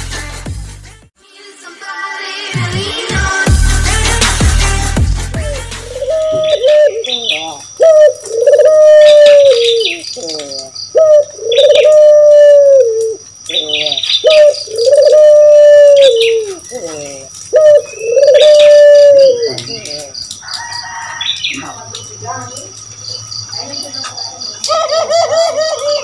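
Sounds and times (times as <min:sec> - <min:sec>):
dove cooing: 0:05.9 - 0:20.2, 0:24.6 - 0:26.0.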